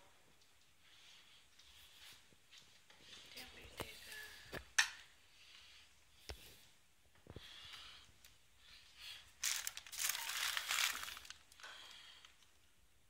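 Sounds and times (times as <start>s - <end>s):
plastic crinkling: 9.1s - 12.5s.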